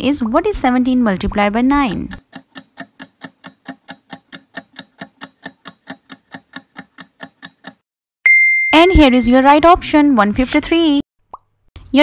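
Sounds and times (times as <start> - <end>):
countdown timer ticking: 1.3 - 7.8.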